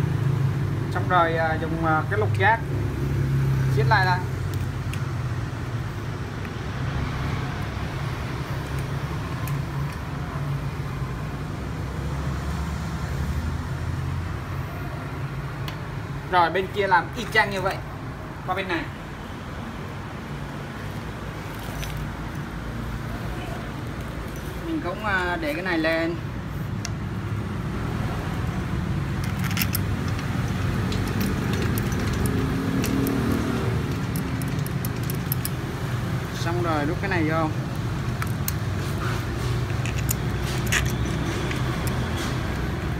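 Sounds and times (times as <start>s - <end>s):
traffic rumble: 0.0s - 42.9s
small metallic clicks: 29.2s - 35.8s, 37.6s - 42.9s.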